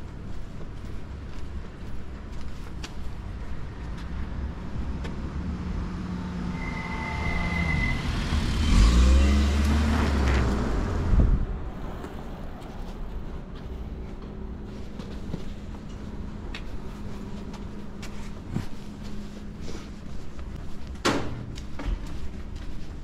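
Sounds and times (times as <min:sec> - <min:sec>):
car passing by: 0:04.2 - 0:13.4.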